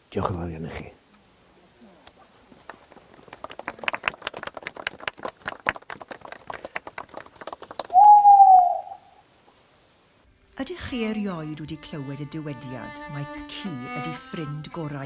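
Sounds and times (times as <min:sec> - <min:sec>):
small group applauding: 0:02.6 - 0:08.7.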